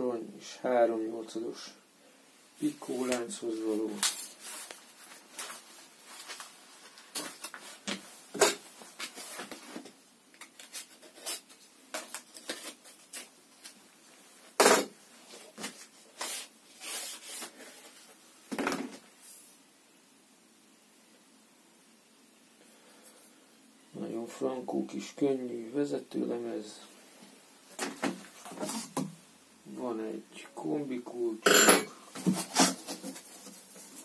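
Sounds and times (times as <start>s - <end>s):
cardboard packaging rustling: 3.0s - 13.8s, 15.2s - 18.2s, 32.1s - 34.0s.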